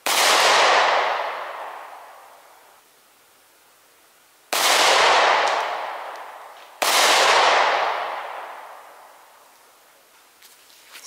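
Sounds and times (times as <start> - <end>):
pistol shots: 0.0 - 2.2, 4.5 - 9.0.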